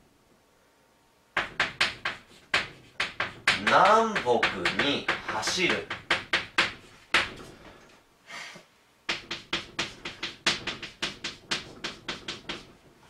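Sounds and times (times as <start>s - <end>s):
chalk scraping on blackboard: 1.4s - 7.1s, 9.1s - 12.8s
chalk tapping on blackboard: 1.4s - 7.6s, 9.1s - 12.9s.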